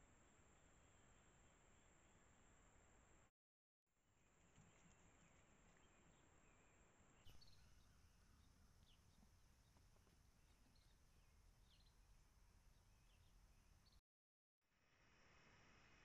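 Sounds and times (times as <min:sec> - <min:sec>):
outdoor background hiss: 0:00.0 - 0:03.3, 0:04.0 - 0:14.0, 0:14.7 - 0:16.0
faint bird chirps: 0:04.6 - 0:09.8, 0:10.4 - 0:12.1.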